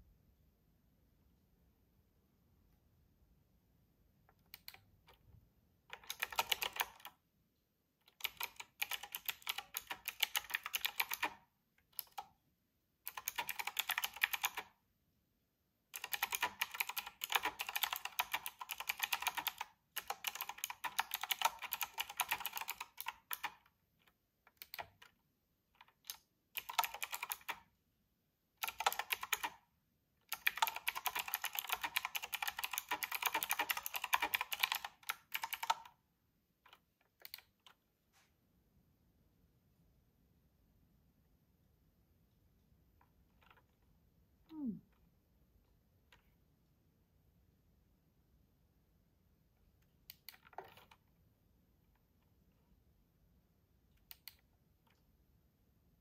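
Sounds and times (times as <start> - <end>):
fast keyboard typing: 5.9 - 7.2, 8.1 - 12.3, 13.1 - 14.8, 15.9 - 23.7, 24.5 - 25.2, 25.8 - 27.7, 28.6 - 29.6, 30.2 - 36.0, 43.3 - 43.7, 50.1 - 51.1.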